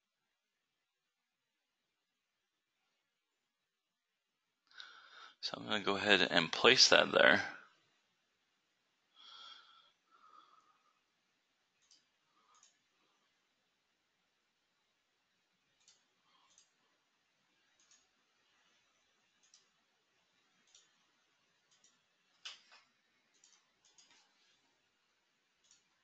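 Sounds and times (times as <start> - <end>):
faint computer mouse clicks: 11.8 - 12.8, 15.8 - 16.8, 17.8 - 18.1, 19.4 - 19.8, 20.6 - 21.0, 21.6 - 24.6, 25.6 - 26.0.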